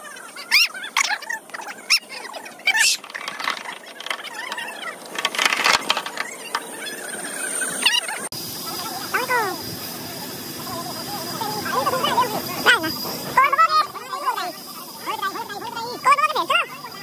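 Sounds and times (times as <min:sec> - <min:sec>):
birds chirping and squealing: 0:00.0 - 0:08.3.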